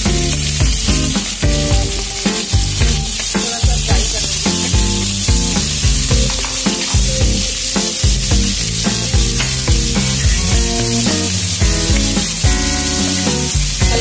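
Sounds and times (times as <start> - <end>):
background music with steady beat: 0.0 - 14.0
onions sizzling in hot oil: 10.4 - 14.0.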